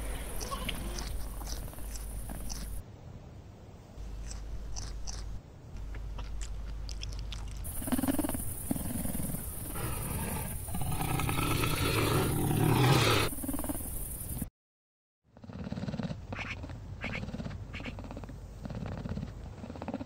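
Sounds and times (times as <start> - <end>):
snow leopard growling: 7.6 - 13.8, 15.4 - 20.0.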